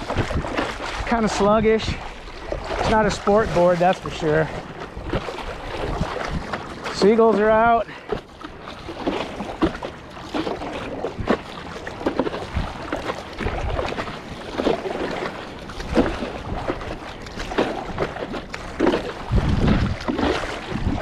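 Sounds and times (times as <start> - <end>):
wind gusting on microphone: 0.0 - 6.8, 19.1 - 21.0
paddle strokes splashing water: 0.0 - 21.0
water slapping against board: 0.0 - 21.0.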